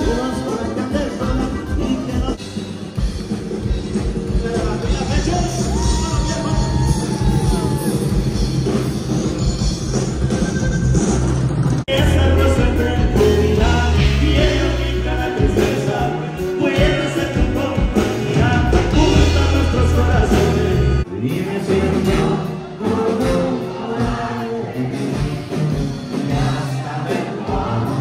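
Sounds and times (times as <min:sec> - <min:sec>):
man singing: 0:00.0 - 0:02.5, 0:11.9 - 0:28.0
heavy bass: 0:00.0 - 0:21.1
drums: 0:00.0 - 0:28.0.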